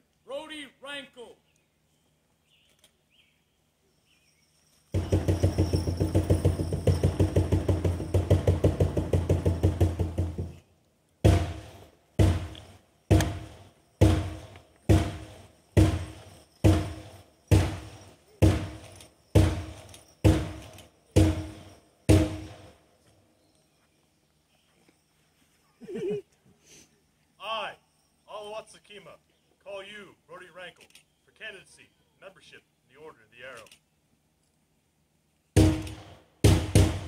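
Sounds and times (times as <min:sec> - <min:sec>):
drum roll: 0:05.0 - 0:10.6, 0:11.2 - 0:18.8, 0:19.4 - 0:22.7, 0:35.6 - 0:37.0
slow single drum strikes: 0:11.3 - 0:18.8.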